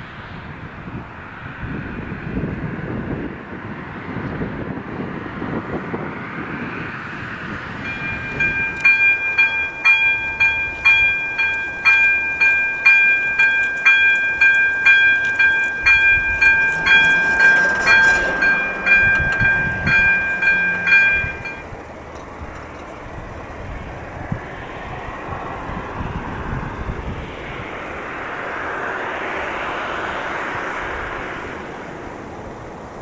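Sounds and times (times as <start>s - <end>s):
rushing noise: 6.0s - 33.0s
level-crossing bell ringing: 7.8s - 21.7s.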